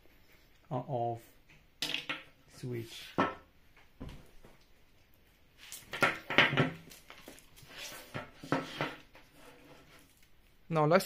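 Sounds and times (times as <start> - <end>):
objects knocking on table: 5.9 - 6.9.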